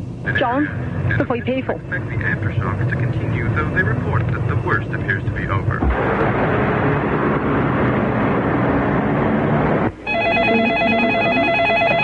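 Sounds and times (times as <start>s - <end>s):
city street traffic: 0.0s - 12.0s
telephone ringing with warble: 10.0s - 12.0s.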